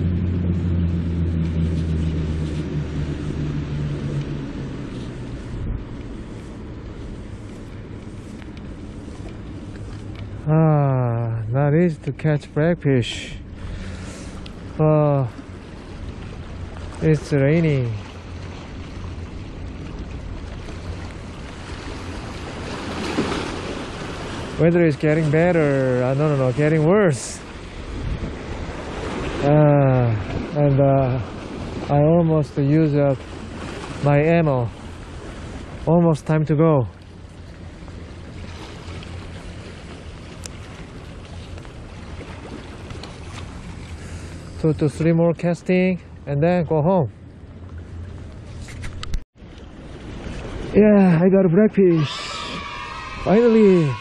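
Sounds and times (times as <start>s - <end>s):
steady low rumble: 0.0s - 22.8s
waves splashing against rocks: 13.5s - 44.6s, 48.8s - 54.0s.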